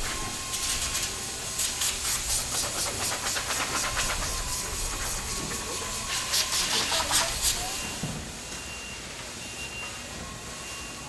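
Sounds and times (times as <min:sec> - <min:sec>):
air blow gun hissing blasts: 0:00.0 - 0:08.5
factory hum: 0:00.0 - 0:11.0.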